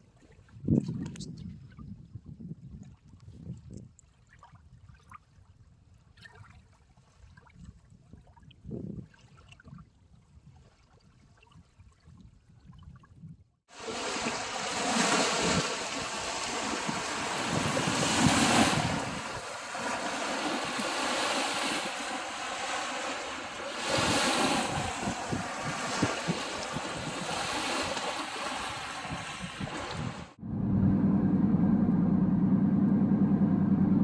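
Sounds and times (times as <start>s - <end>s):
wind rumbling on microphone: 0.0s - 6.1s, 7.1s - 34.0s
waves washing over pebbles: 13.7s - 30.4s.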